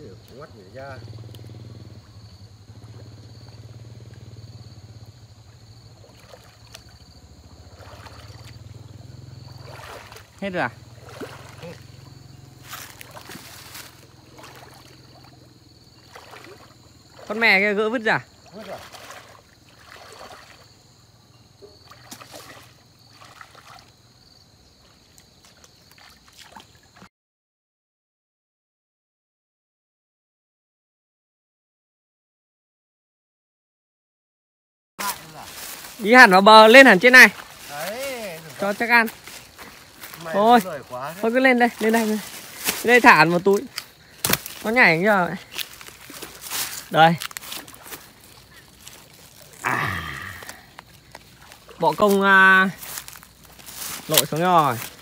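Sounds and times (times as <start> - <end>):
small engine droning: 0.0 - 24.2
insects whining: 0.0 - 27.1, 35.0 - 55.0
water sloshing from wading: 0.3 - 27.1, 35.0 - 55.0.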